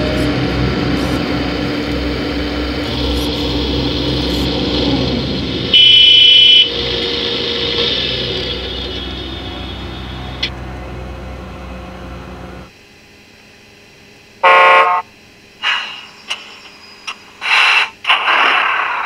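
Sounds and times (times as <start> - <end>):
loud electronic beep: 0.0 - 10.4
low pulsing engine hum: 0.0 - 17.4
hydraulic pump whine: 0.0 - 18.7.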